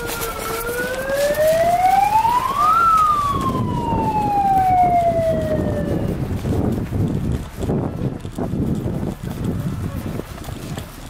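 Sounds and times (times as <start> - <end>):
siren wailing: 0.0 - 6.3.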